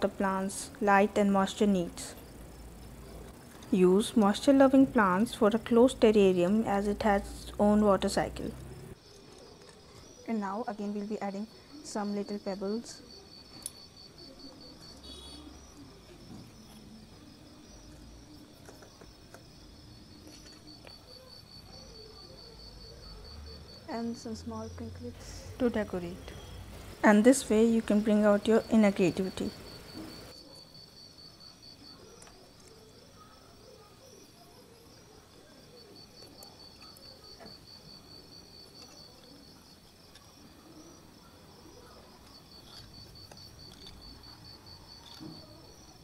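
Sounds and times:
high-pitched insect chirring: 3.7s - 46.0s
bird cooing softly: 40.4s - 42.2s.

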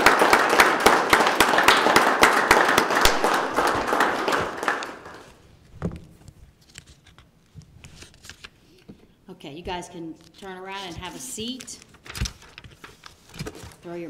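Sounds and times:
people applauding: 0.0s - 5.4s.

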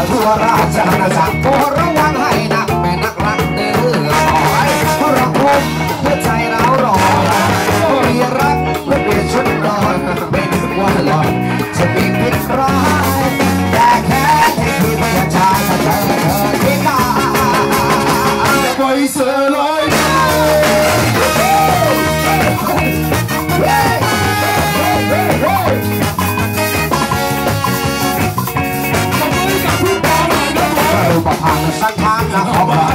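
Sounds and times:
people singing into microphones: 0.0s - 26.2s, 29.0s - 32.9s
bass guitar: 0.0s - 32.9s
drums: 0.0s - 32.9s
electric guitar: 0.0s - 32.9s
trombone and trumpet: 3.8s - 8.6s, 11.4s - 32.9s.

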